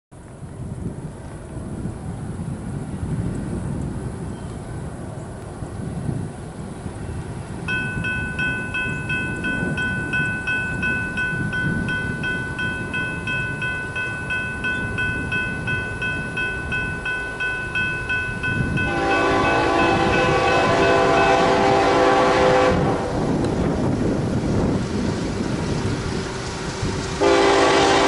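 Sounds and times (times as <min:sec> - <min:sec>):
crossing warning bell ringing: 0:07.6 - 0:23.0, 0:27.2 - 0:28.0
locomotive air horn: 0:18.8 - 0:23.3, 0:27.2 - 0:28.0.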